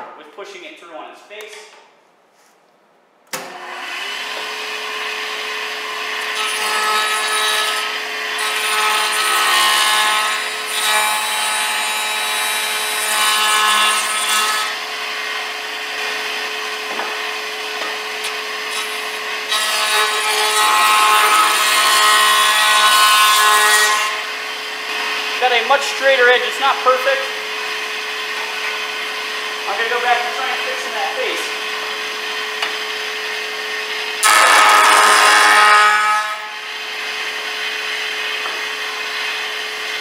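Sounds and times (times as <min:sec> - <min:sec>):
cutter head cutting wood: 0:03.3 - 0:40.0
jointer whining: 0:25.0 - 0:37.5.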